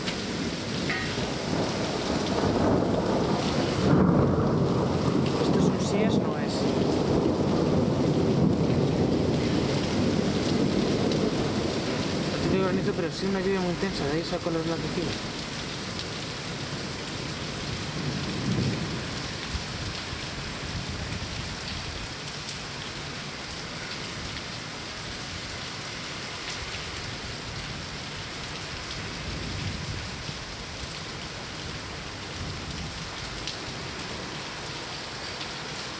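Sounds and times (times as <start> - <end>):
heavy rain: 0.0 - 35.9
low thunder rumbles: 0.8 - 13.2, 17.5 - 20.0.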